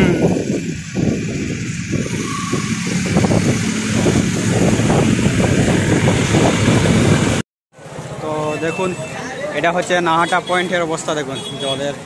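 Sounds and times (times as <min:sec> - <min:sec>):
wind on microphone: 0:00.0 - 0:07.4
road traffic rushing past: 0:00.2 - 0:12.0.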